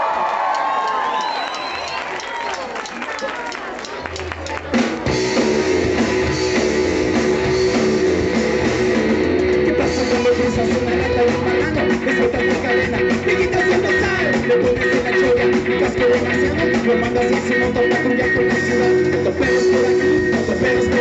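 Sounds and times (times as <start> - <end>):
rock band playing: 3.9 - 21.0.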